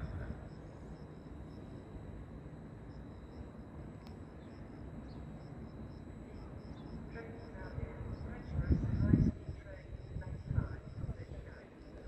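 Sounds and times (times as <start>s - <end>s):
insect chirping in pulses: 0.0s - 12.0s
steady low rumble: 0.0s - 12.0s
faint click: 4.0s - 4.2s.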